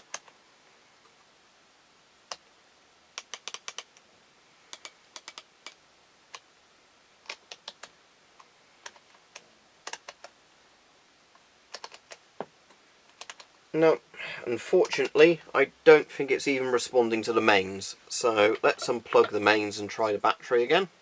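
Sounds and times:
rotary switch clicking: 0:03.2 - 0:04.0, 0:04.7 - 0:06.4.

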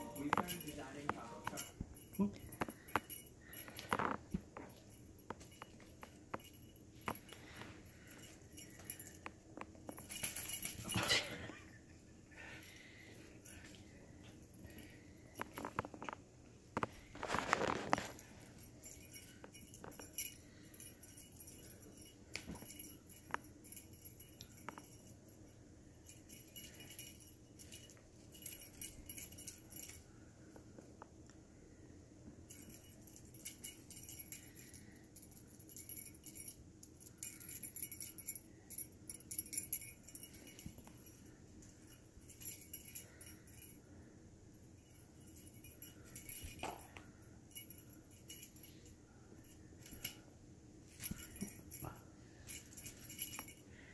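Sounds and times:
kittens scuffling: 0:00.0 - 0:31.4, 0:44.8 - 0:53.9
small bell jingling: 0:00.0 - 0:53.9
bedding rustling: 0:15.2 - 0:23.8.

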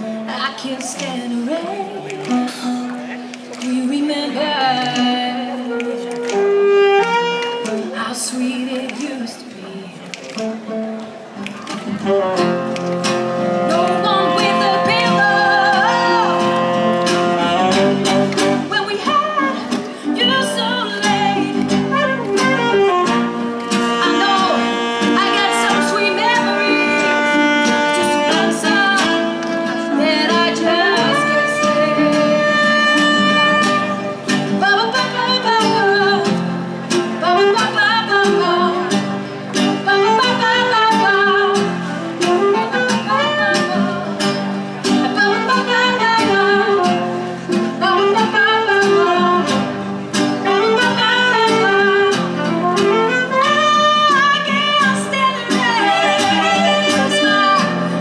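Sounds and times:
acoustic guitar: 0:00.0 - 0:58.0
saxophone solo melody: 0:05.6 - 0:08.0, 0:11.9 - 0:18.6, 0:21.1 - 0:34.8, 0:42.1 - 0:44.2, 0:50.4 - 0:58.0.

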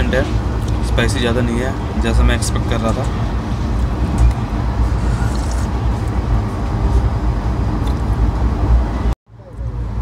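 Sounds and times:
train rumbling: 0:00.0 - 0:10.0.

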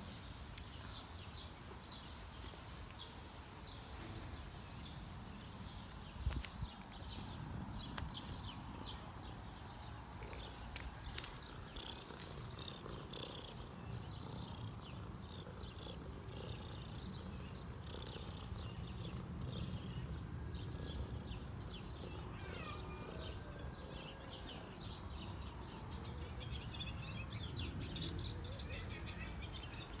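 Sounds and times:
cat purring: 0:07.9 - 0:24.7.

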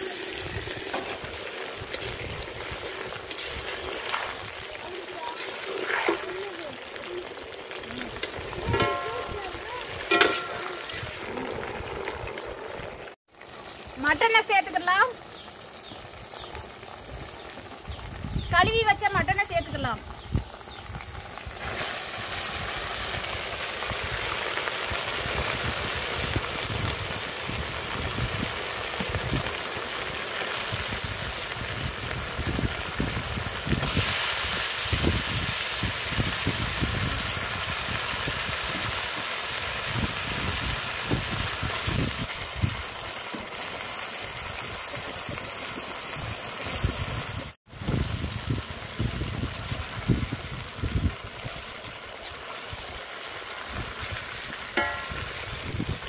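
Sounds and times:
meat sizzling in hot oil: 0:00.0 - 0:56.0
spatula stirring meat: 0:00.2 - 0:06.3.

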